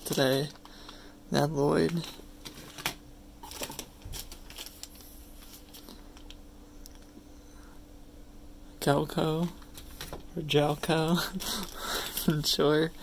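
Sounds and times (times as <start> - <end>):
plastic packaging crinkling: 1.7 - 6.4, 10.8 - 12.6.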